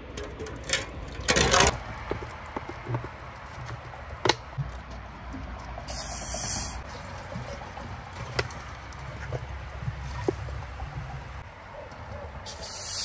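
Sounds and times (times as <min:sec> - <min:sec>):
short loud hiss: 0:05.9 - 0:06.8, 0:12.5 - 0:13.0.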